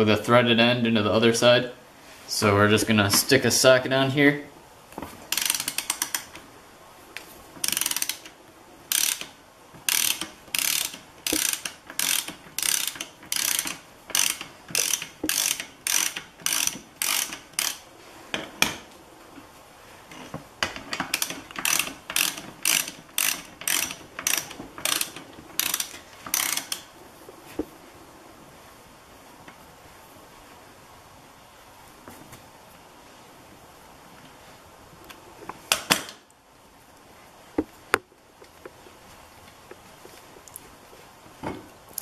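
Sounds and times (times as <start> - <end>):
socket ratchet clicking: 5.3 - 6.4, 7.6 - 17.8, 21.0 - 26.9.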